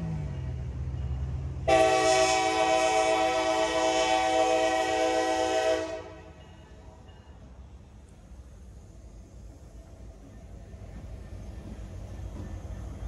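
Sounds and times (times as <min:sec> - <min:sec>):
locomotive air horn blast: 0:01.6 - 0:06.4.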